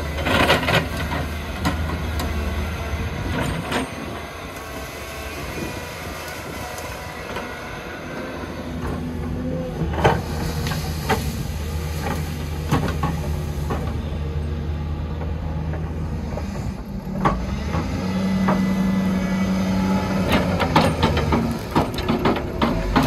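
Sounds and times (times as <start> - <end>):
diesel machinery running: 0.0 - 23.0.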